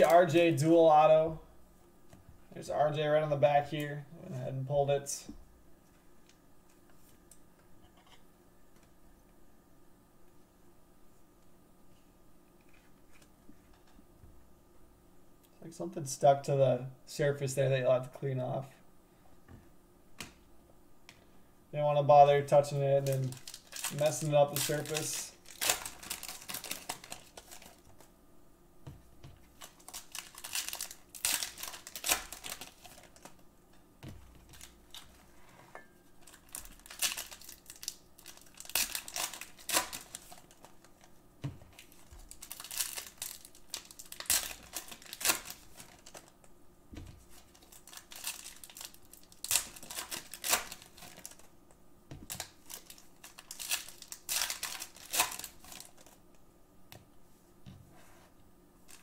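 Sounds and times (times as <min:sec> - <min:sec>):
plastic wrappers crinkling and tearing: 0:00.0 - 0:00.5, 0:22.5 - 0:28.1, 0:29.4 - 0:33.4, 0:34.2 - 0:35.3, 0:36.1 - 0:46.5, 0:47.2 - 0:51.6, 0:52.2 - 0:56.4.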